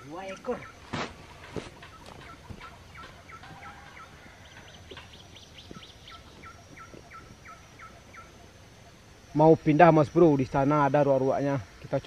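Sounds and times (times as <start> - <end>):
waterhens calling: 0.0 - 9.3.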